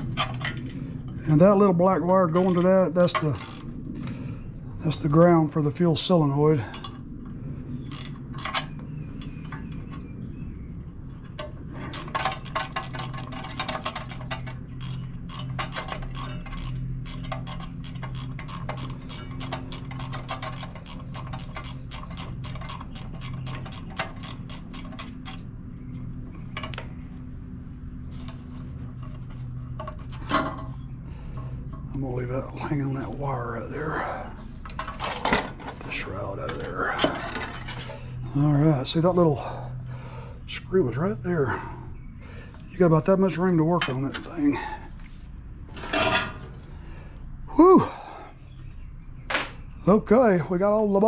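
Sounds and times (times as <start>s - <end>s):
ratchet wrench clicking: 2.3s - 3.7s, 7.9s - 9.3s, 11.9s - 25.5s.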